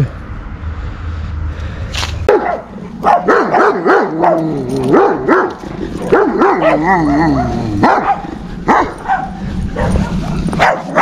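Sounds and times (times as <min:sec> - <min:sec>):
dog barking and yelping: 0:02.3 - 0:11.0.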